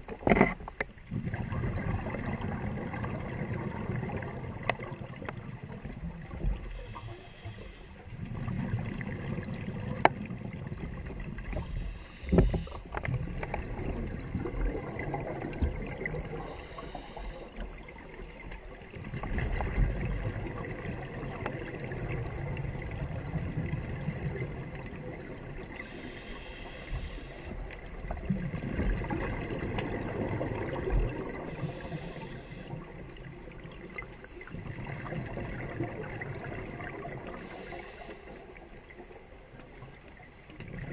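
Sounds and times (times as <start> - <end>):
rumbling bubbles on exhale: 1.0 - 7.0, 8.1 - 26.3, 27.5 - 39.9, 40.5 - 40.9
regulator hiss on inhale: 6.6 - 8.1, 11.4 - 13.0, 16.2 - 17.8, 25.7 - 27.7, 31.4 - 33.0, 37.2 - 38.5.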